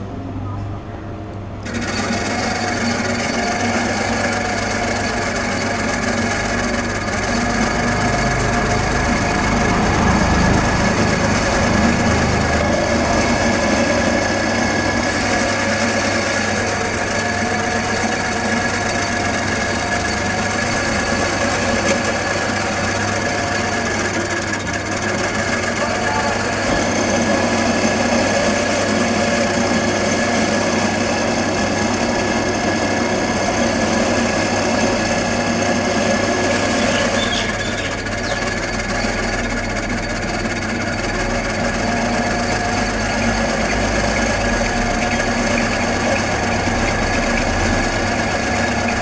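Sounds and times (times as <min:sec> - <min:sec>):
electric motor whirring: 0:01.6 - 0:39.7.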